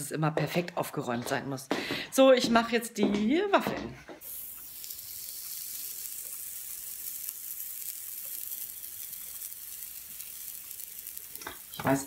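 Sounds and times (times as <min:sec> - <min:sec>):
batter sizzling on hot plate: 0:04.2 - 0:12.0.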